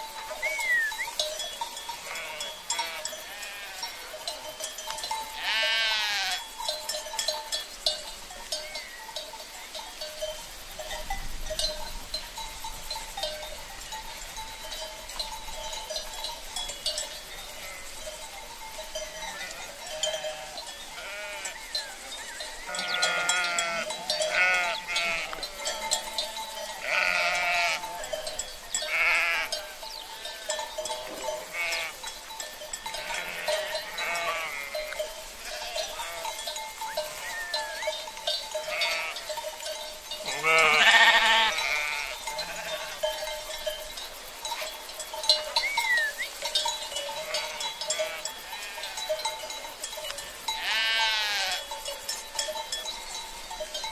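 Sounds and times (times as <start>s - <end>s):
sheep bleating: 1.9s - 4.1s, 5.4s - 6.4s, 17.6s - 17.9s, 19.3s - 25.8s, 26.8s - 28.0s, 28.8s - 30.5s, 31.4s - 32.0s, 33.0s - 37.8s, 38.6s - 39.3s, 40.3s - 43.0s, 47.2s - 49.0s, 50.6s - 51.6s.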